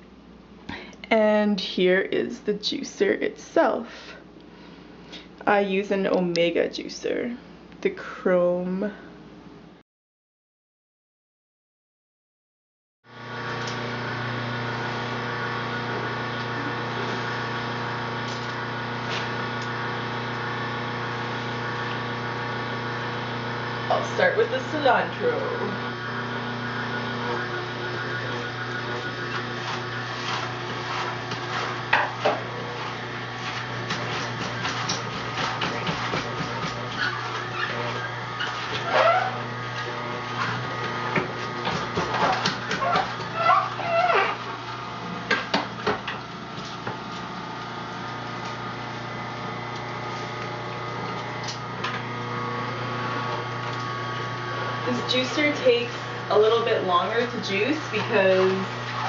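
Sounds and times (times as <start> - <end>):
juicer motor humming: 13.1 - 59.0
greens rubbing and creaking: 42.2 - 44.6.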